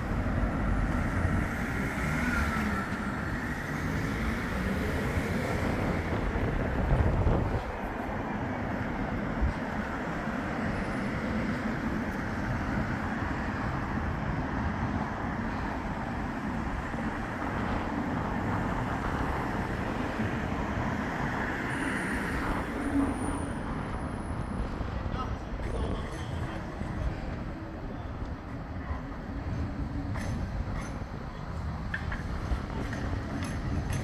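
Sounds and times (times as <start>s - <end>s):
road traffic hum: 0.0s - 34.0s.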